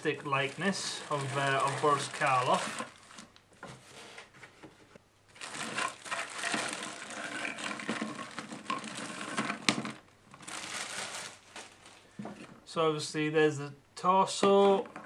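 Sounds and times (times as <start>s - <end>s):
plastic bag crinkling: 0.0s - 3.4s, 5.3s - 12.2s.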